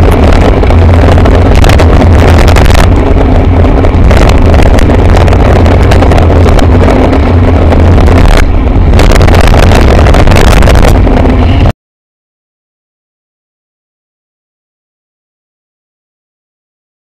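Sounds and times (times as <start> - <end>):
traffic on a wet road: 0.0 - 11.7
wind rumble buffeting microphone: 0.0 - 11.7.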